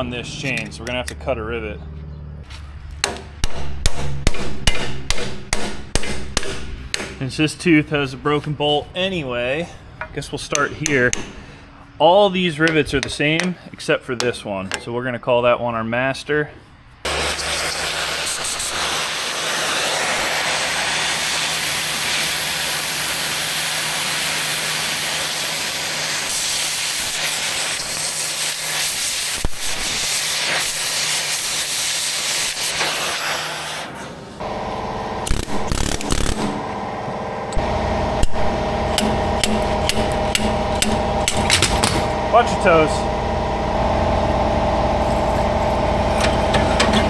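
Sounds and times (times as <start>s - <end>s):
angle grinder cutting metal: 17.1s - 33.1s, 37.5s - 47.0s
engine running: 34.1s - 47.0s.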